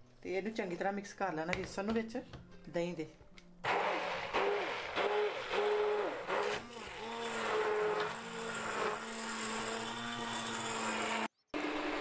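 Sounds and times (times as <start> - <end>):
stick blender whirring: 3.6 - 12.0.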